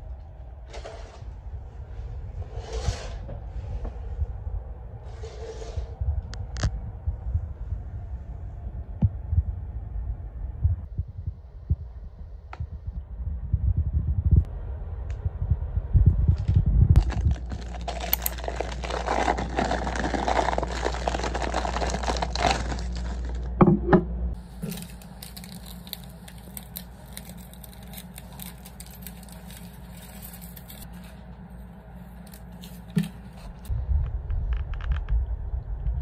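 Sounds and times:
paper packets crinkling and tearing: 17.0 - 23.5, 24.4 - 33.7.

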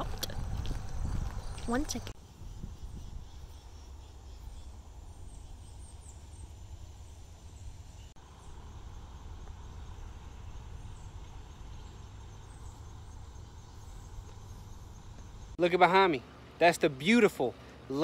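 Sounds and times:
river flowing rumble and hiss: 3.7 - 18.0.

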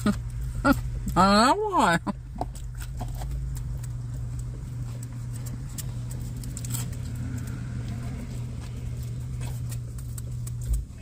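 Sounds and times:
steady low hum: 0.0 - 11.0
small irregular clicks and taps: 8.6 - 11.0.

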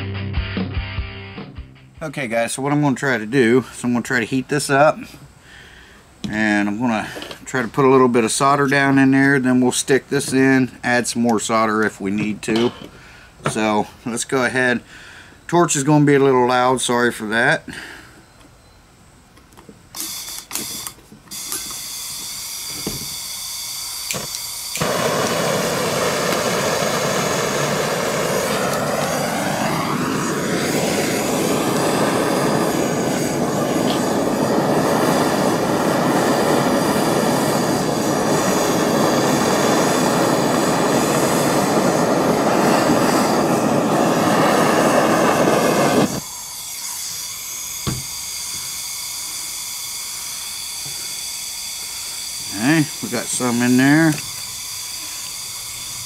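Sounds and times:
propane torch roaring: 2.0 - 18.2, 19.4 - 56.0.

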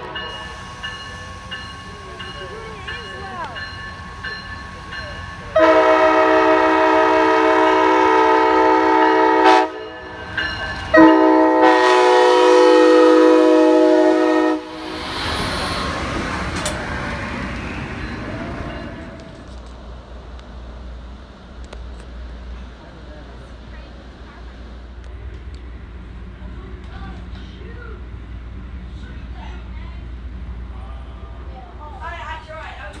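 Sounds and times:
passenger cars rumbling on rails: 0.0 - 33.0
locomotive air horn blasts: 5.6 - 10.0, 10.9 - 14.8.

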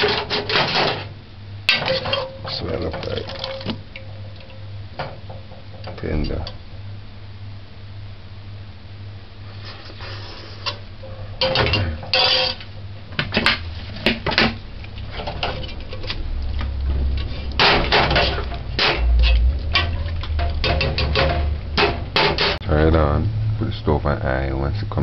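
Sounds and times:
metal ladle scraping metal pot: 9.8 - 12.8, 17.1 - 22.6.

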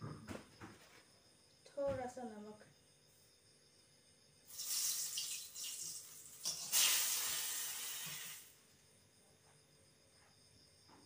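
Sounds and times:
oil sizzling in a wok: 4.4 - 8.7.

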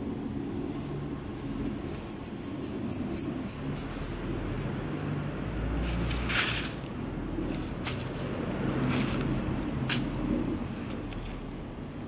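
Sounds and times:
insect chirping: 1.4 - 6.0.

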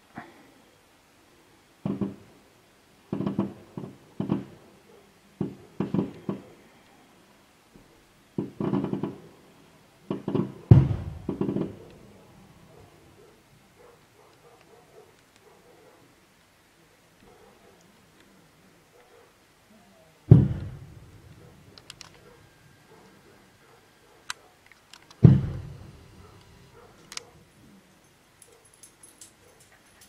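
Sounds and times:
fireworks bursting bangs: 1.8 - 2.4, 3.1 - 4.8, 5.4 - 6.6, 8.4 - 9.4, 10.0 - 12.2, 20.3 - 22.4, 25.2 - 27.1.

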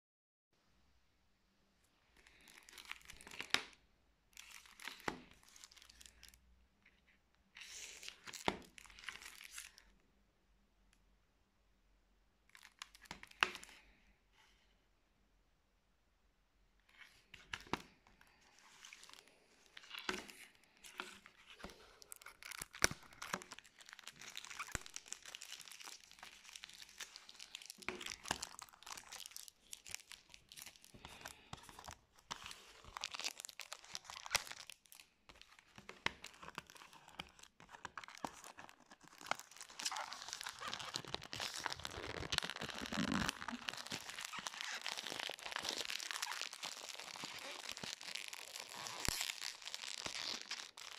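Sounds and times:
plastic wrap crinkling: 2.2 - 7.0, 12.5 - 13.9, 16.9 - 50.9.

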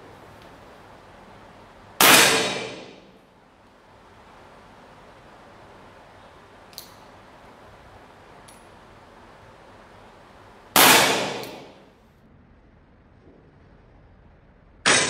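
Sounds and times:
pellet revolver firing: 2.0 - 3.0, 10.8 - 11.8.

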